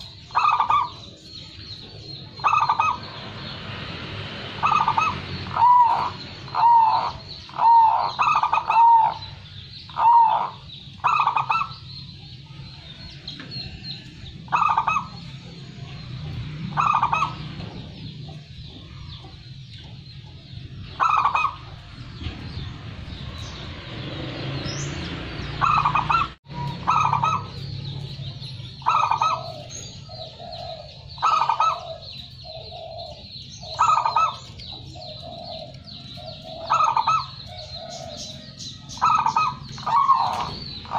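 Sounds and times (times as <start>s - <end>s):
dove cooing: 0.0s - 1.4s, 2.4s - 3.2s, 4.6s - 11.9s, 13.8s - 15.4s, 16.7s - 19.4s, 20.8s - 21.9s, 25.6s - 40.9s.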